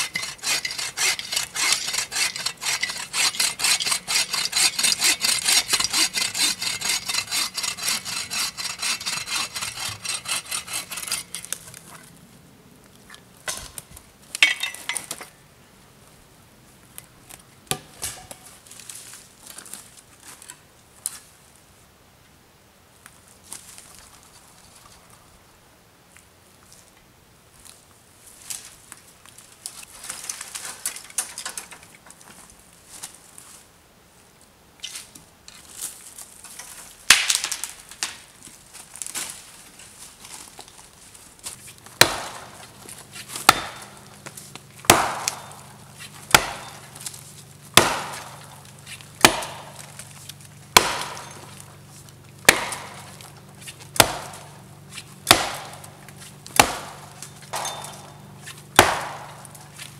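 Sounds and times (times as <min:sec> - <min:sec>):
hatchet chopping wood: 0:00.0 - 0:11.5, 0:17.7 - 0:18.3, 0:42.0 - 0:51.6, 0:52.4 - 0:59.6
dead branches snapping: 0:37.1 - 0:38.2, 0:47.8 - 0:51.7, 0:52.5 - 0:53.4, 0:55.3 - 0:58.1, 0:58.8 - 0:59.9.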